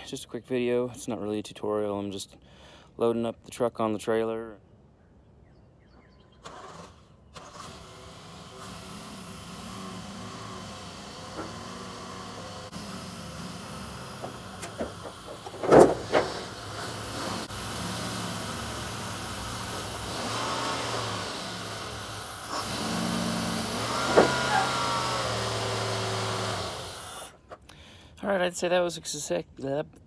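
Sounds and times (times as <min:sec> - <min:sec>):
sharp clunk: 0:14.2 - 0:16.5, 0:24.0 - 0:24.7.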